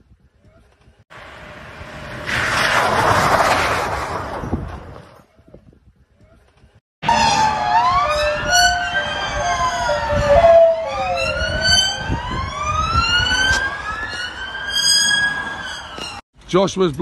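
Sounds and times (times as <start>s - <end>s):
police siren wailing: 7.0s - 16.2s.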